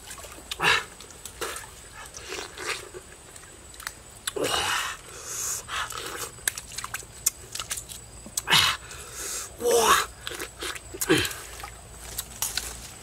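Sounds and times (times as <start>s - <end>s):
pineapple being bitten and chewed: 1.2s - 4.4s, 5.8s - 8.5s, 10.1s - 13.0s.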